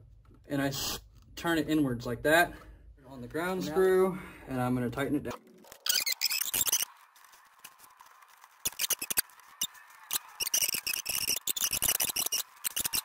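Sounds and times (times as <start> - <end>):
screwdriver scraping screw: 10.4 - 13.0.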